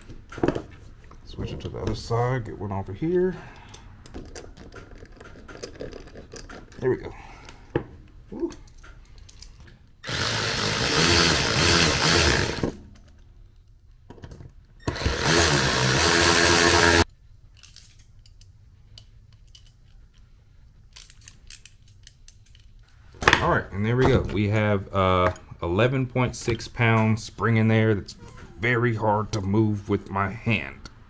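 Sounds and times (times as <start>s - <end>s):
cordless electric ratchet running: 10.0s - 12.8s, 14.9s - 17.1s.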